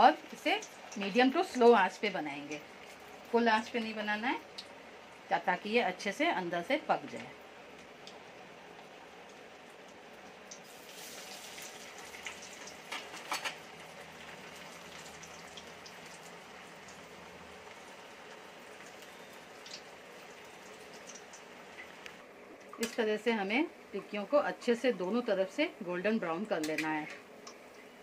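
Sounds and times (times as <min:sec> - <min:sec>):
patties sizzling in oil: 0:00.0 - 0:25.7.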